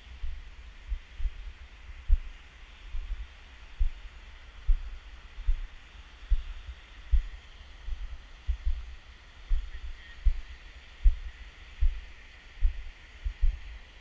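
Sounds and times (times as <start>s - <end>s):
faint steady hiss: 0.0s - 14.0s.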